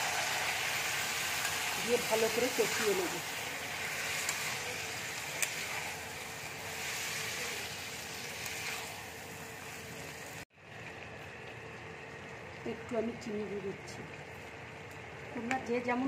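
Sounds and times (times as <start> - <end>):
food sizzling in a wok: 0.0 - 10.5
spatula scraping a pan: 6.8 - 9.0.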